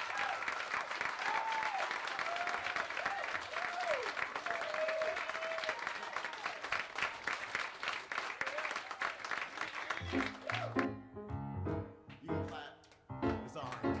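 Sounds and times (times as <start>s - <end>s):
audience applauding: 0.0s - 11.0s, 12.1s - 14.0s
piano playing: 10.0s - 14.0s.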